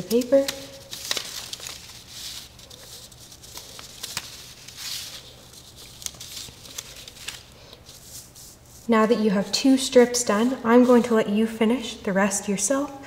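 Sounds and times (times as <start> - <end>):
paper rustling: 0.0 - 8.9.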